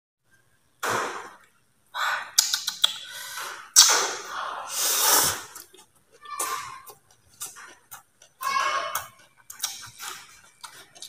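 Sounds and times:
sharp clicks: 2.4s - 3.1s
noodles being slurped: 3.8s - 11.0s.

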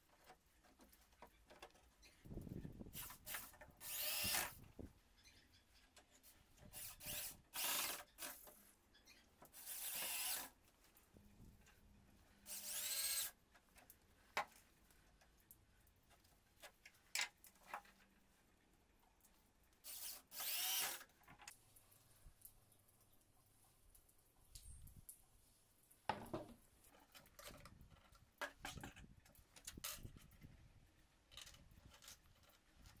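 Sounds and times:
cordless drill motor whine: 3.8s - 4.6s, 6.8s - 8.0s, 9.6s - 10.5s, 12.5s - 13.3s, 19.9s - 21.0s.

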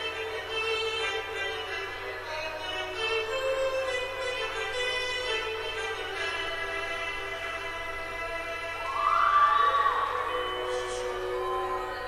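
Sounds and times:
music with sustained notes: 0.0s - 12.0s
high note gliding up: 3.3s - 12.0s.

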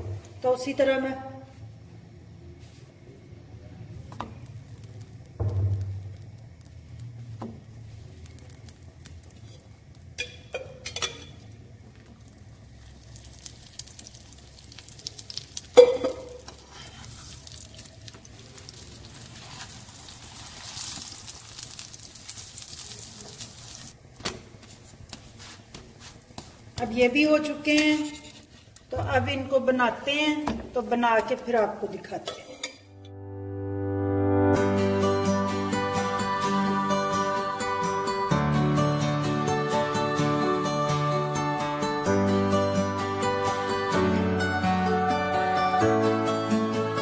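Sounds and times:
soft sizzle: 1.5s - 33.0s.

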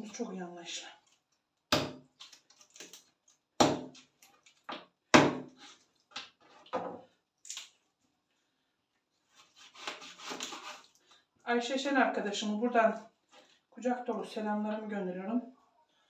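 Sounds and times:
knife chopping on cutting board: 3.6s - 3.9s, 5.2s - 5.5s.

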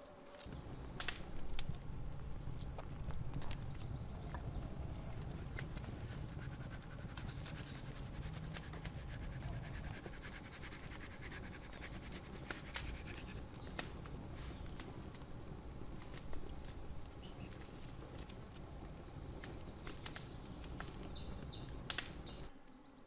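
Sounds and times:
campfire crackling: 0.0s - 22.5s
hands rubbing spice on meat: 5.8s - 13.5s.

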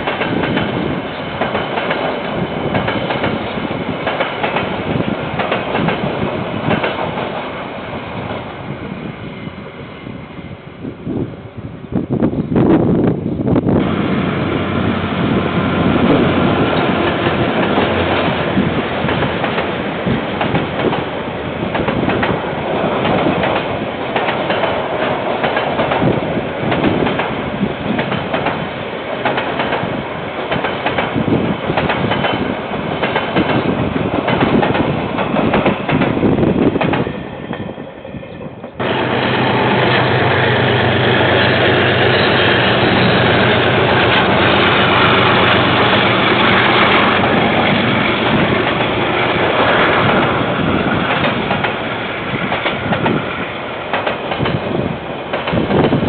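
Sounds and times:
train wheels clattering over rails: 0.0s - 8.5s, 15.4s - 37.7s, 38.6s - 56.0s
diesel locomotive engine running: 38.7s - 54.9s.

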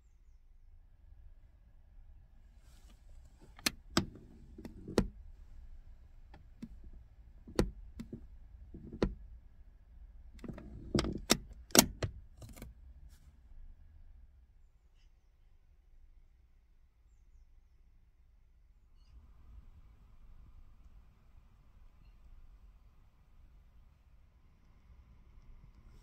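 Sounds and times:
handbrake ratchet clicking: 3.4s - 5.2s, 6.3s - 9.2s, 10.4s - 12.7s.

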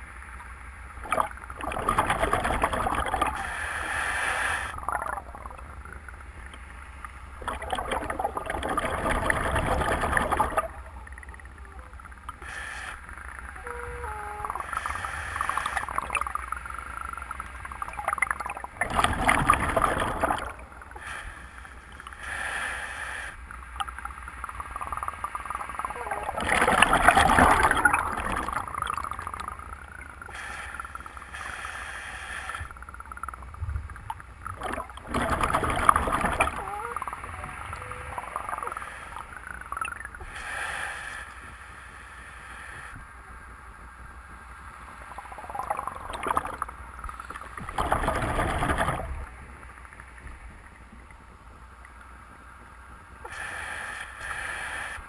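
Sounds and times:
exhaled bubbles gurgling underwater: 1.0s - 21.2s, 23.7s - 31.6s, 32.5s - 40.4s, 45.0s - 51.2s.

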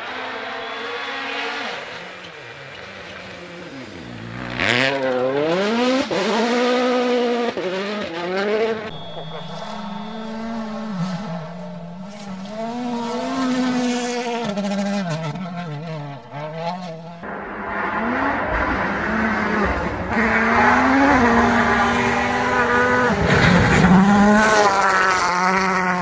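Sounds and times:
rally car engines at full throttle: 0.0s - 26.0s.

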